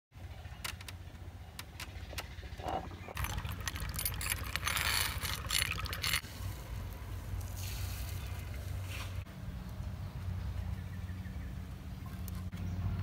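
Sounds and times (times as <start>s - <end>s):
stone scraping against stone: 3.5s - 6.2s.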